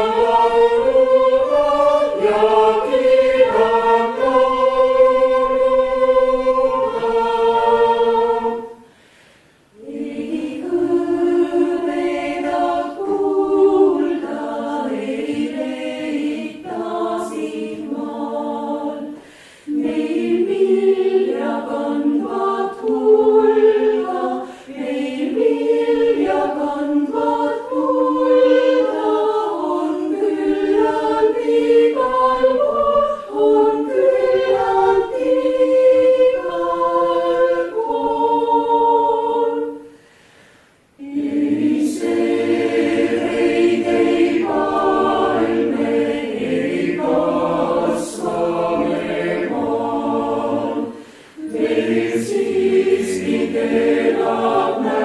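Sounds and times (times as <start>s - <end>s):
chamber choir singing: 0.0s - 9.0s, 9.6s - 40.2s, 40.9s - 55.0s
short breaths: 8.8s - 9.7s, 19.2s - 19.7s, 24.4s - 24.7s, 39.9s - 40.9s, 50.9s - 51.4s.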